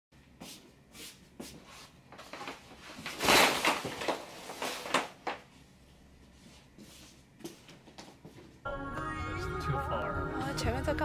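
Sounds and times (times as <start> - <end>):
curtains swishing and sliding: 2.2 - 5.2.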